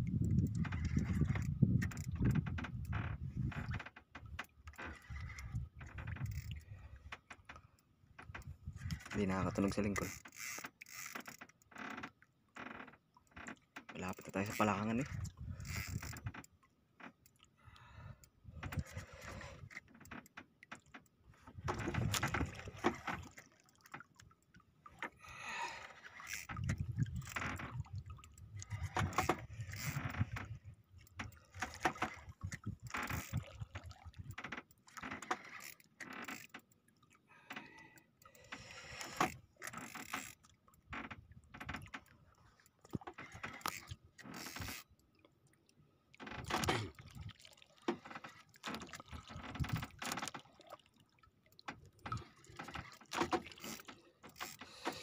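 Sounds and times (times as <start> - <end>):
water sloshing against hull: 0.0 - 55.0
fishing reel cranking: 6.2 - 6.8, 8.9 - 12.0, 14.1 - 16.4, 25.4 - 27.6, 28.3 - 32.3, 35.0 - 36.7, 38.3 - 40.4, 43.2 - 44.9, 52.5 - 55.0.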